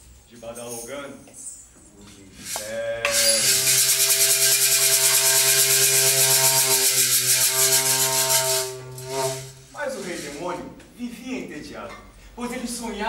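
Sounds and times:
hissing shaker rattle: 2.4 - 10.5
low drone on one note: 5.5 - 9.7.

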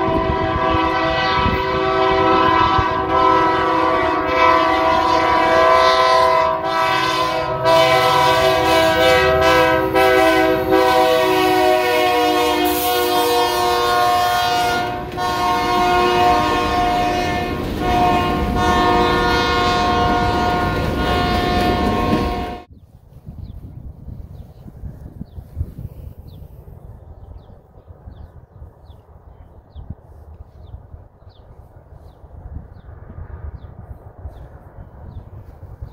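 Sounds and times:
locomotive air horn: 0.0 - 22.7.

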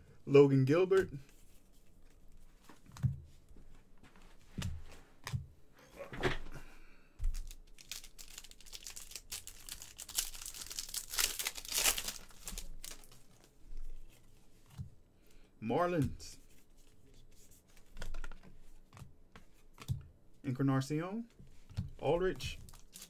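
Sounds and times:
card pack wrapper crinkling and tearing: 7.3 - 13.6, 22.5 - 23.0.

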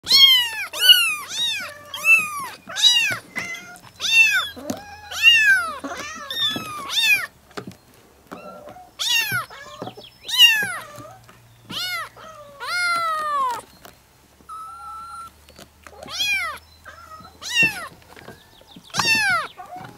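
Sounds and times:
kittens meowing: 0.0 - 7.3, 8.3 - 13.7, 14.5 - 19.9.

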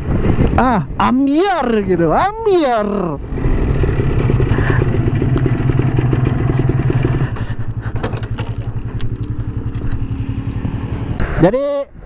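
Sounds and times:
motorcycle engine running: 2.8 - 11.4.

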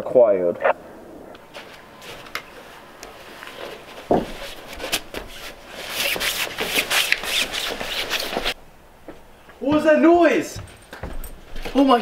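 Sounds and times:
clothing rustling and scraping: 1.4 - 8.6
thump on wooden deck: 4.1 - 4.4.

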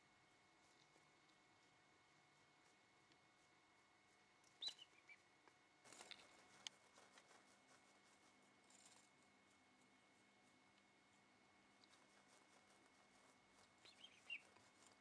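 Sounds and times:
wings fluttering: 4.4 - 9.3, 11.7 - 15.0
bird high call: 4.6 - 5.2, 13.8 - 14.5.

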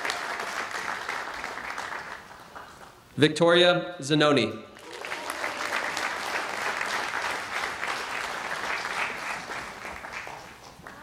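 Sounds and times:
audience applauding: 0.0 - 3.0, 4.8 - 11.0.

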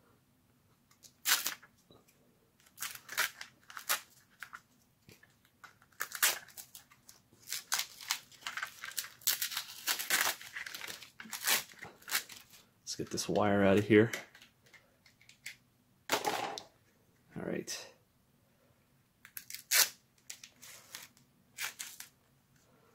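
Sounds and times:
masking tape ripping off plastic: 1.1 - 1.6, 2.6 - 4.5, 5.9 - 6.8, 7.4 - 12.6, 19.3 - 22.1.

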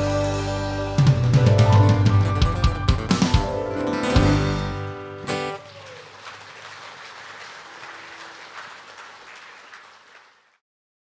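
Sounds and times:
gospel band on guitars and drums: 0.0 - 5.7
audience applause: 5.2 - 10.6.

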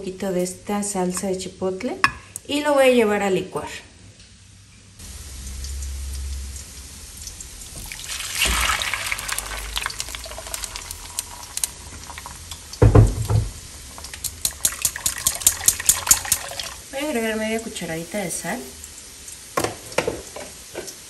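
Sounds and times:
salsa pouring through strainer: 7.5 - 12.8, 13.5 - 16.8
heavy thump: 12.8 - 13.6.

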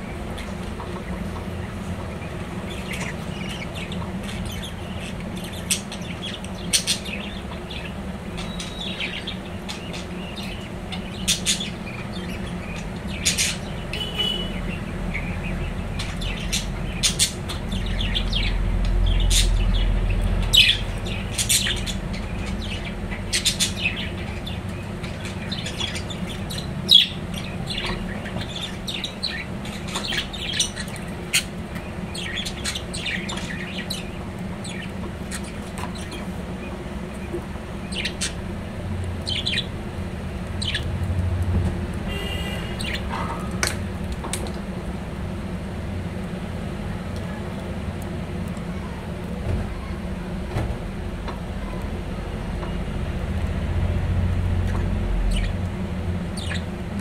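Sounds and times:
steady low hum: 0.0 - 57.0
budgerigars chirping: 0.3 - 38.4, 39.2 - 39.7, 40.6 - 40.9, 42.1 - 43.2, 54.7 - 55.6, 56.4 - 56.7.

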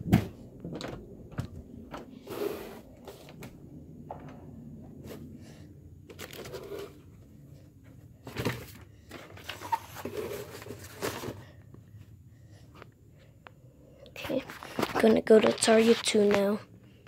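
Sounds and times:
paper and packaging rustling: 6.1 - 7.0, 8.2 - 11.5, 14.2 - 16.6.

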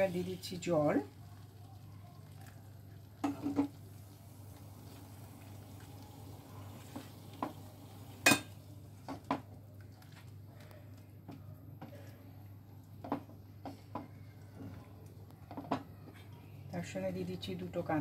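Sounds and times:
water pouring into hot pan: 0.0 - 9.0
light sizzling: 0.0 - 11.2.

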